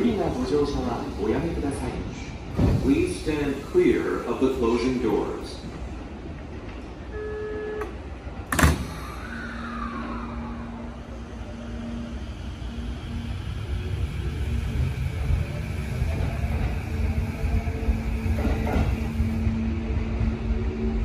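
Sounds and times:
electric train hum: 0.0 - 21.0
short steady beep: 7.1 - 7.9.

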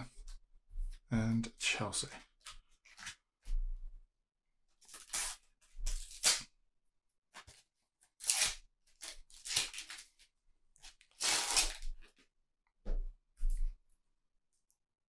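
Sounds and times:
paper packet tearing: 4.8 - 6.5, 7.4 - 10.2, 10.8 - 12.1.

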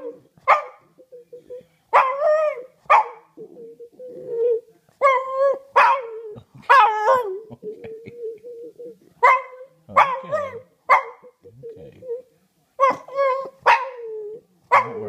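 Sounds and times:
dog howling barks: 0.0 - 0.8, 1.9 - 3.3, 4.5 - 7.4, 9.2 - 11.3, 12.8 - 15.0
dog whining: 3.4 - 15.0.

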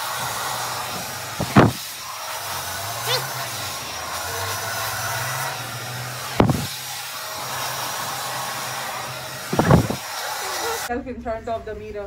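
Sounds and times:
hair dryer running: 0.0 - 10.9
dull thump: 1.4 - 1.8, 6.4 - 6.7.

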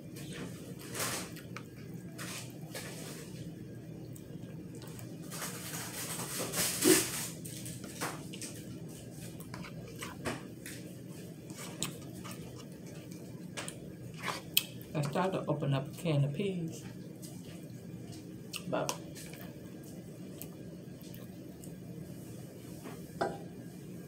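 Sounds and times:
plastic fork scraping plastic bowl: 9.5 - 10.2, 11.5 - 12.7, 14.1 - 14.5
chewing mouth noises: 11.5 - 14.9.

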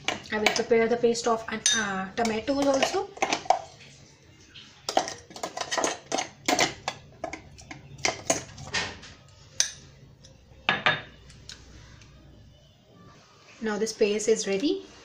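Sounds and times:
spoon scraping metal jar: 1.7 - 3.8, 4.9 - 8.9.

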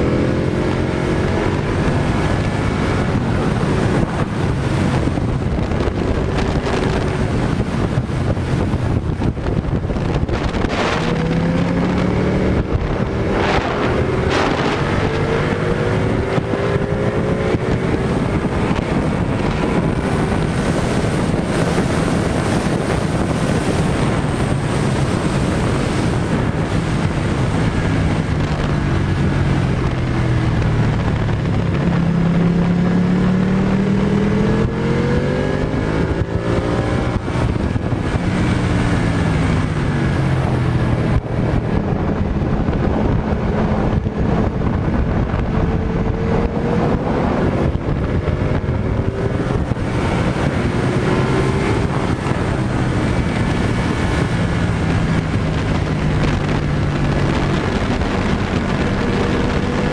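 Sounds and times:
motorcycle engine revving: 0.0 - 59.9
wind rushing on microphone: 0.0 - 59.9.

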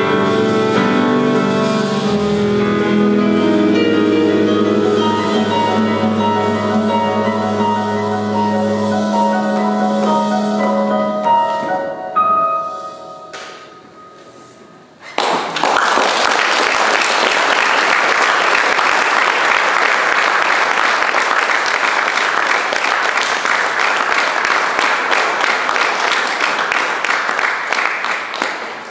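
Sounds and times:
jazz band playing: 0.0 - 14.6
audience applauding: 15.0 - 28.9.

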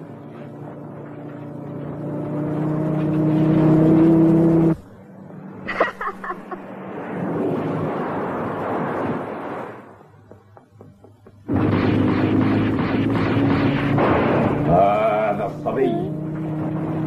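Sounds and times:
truck engine running: 10.1 - 16.6.

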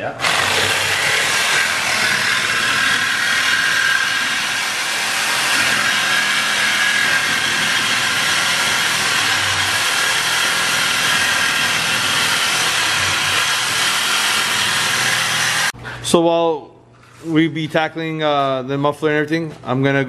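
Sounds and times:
power saw screeching through metal: 0.0 - 15.8.

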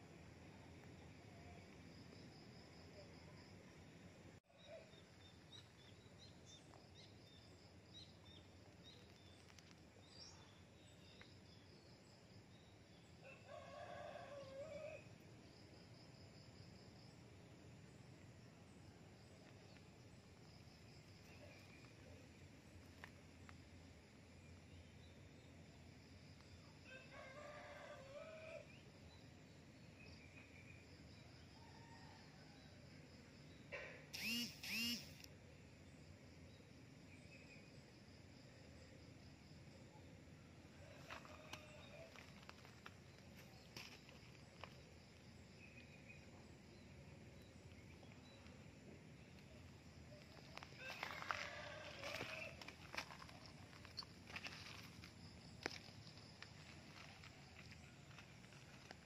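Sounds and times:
outdoor background noise: 0.0 - 59.0
distant rooster crowing: 13.3 - 15.0, 26.9 - 28.7, 41.0 - 42.8, 50.8 - 53.2
small high chirps: 34.1 - 35.3.

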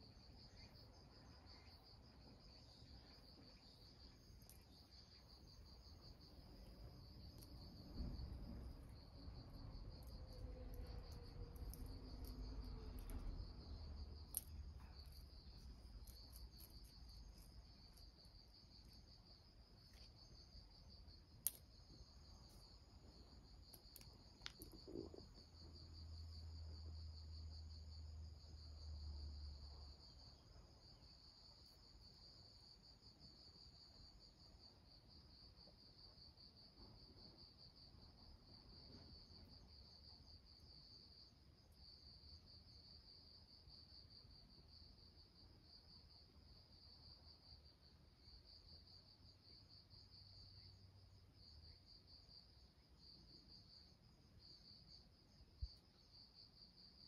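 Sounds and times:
insects trilling: 0.1 - 28.7.

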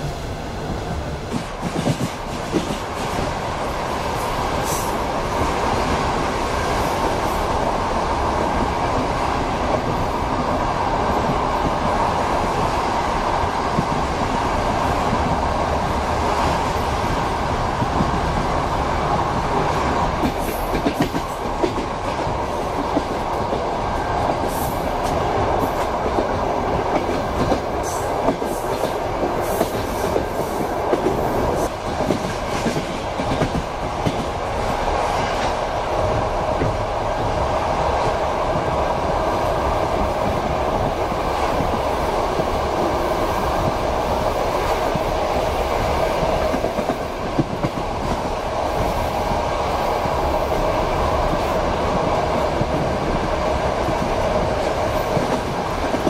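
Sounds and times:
train wheels rumbling: 0.0 - 56.0
sharp clicks and clacks: 1.3 - 3.2.

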